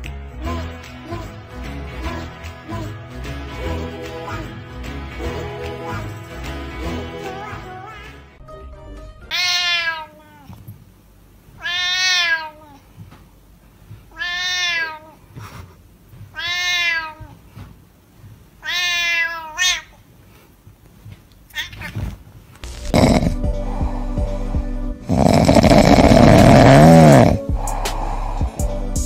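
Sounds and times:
cat meowing: 9.3s - 10.6s, 11.6s - 12.8s, 14.1s - 15.2s, 16.3s - 17.4s, 18.6s - 20.0s, 21.5s - 22.2s.

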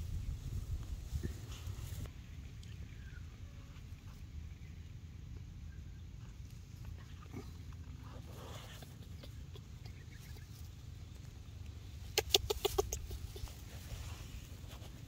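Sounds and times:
low outdoor rumble: 0.0s - 15.0s
chicken clucking: 12.2s - 13.7s.

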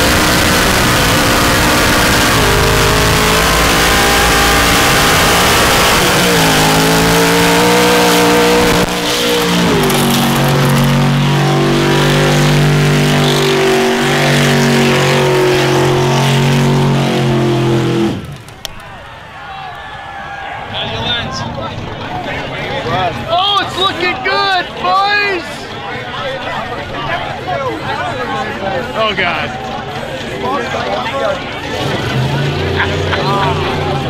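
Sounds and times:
truck engine revving high: 0.0s - 18.6s, 28.8s - 34.0s
tyres spinning in dirt: 0.0s - 23.3s.

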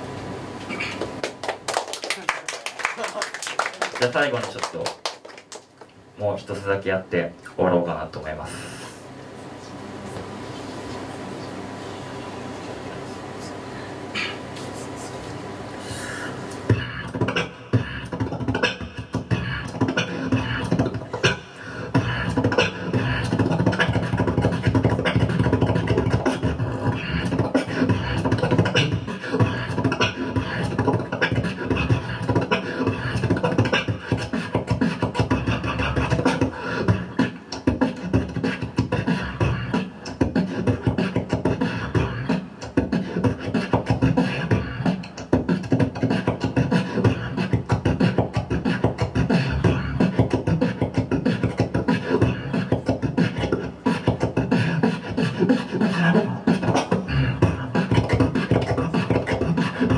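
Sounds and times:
beatboxing into a microphone: 0.6s - 1.4s, 15.9s - 59.9s.

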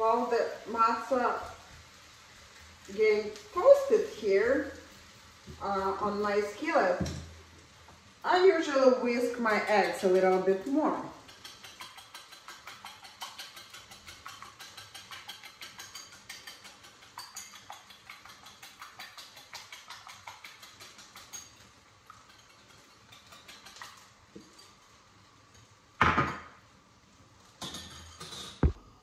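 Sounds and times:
whisk beating eggs in bowl: 8.7s - 24.8s.

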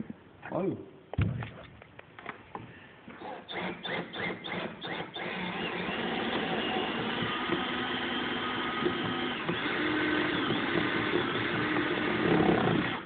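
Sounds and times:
power drill driving a screw: 3.2s - 13.0s.

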